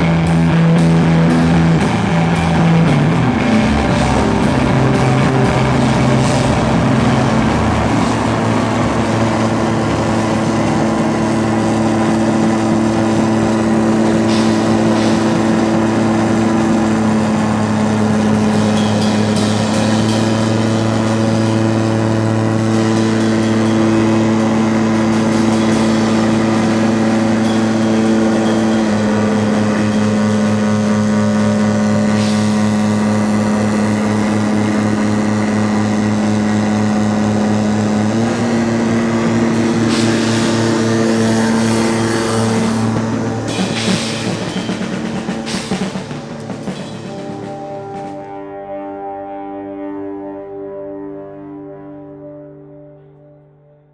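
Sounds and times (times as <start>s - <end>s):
fast low pulsing: 0.0s - 48.4s
noise drone music: 0.0s - 53.9s.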